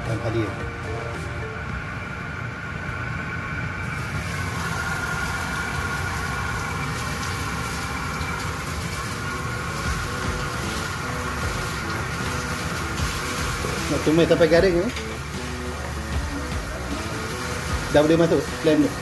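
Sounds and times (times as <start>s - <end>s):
low mechanical hum: 0.0s - 19.0s
spices sizzling in hot oil: 3.9s - 19.0s.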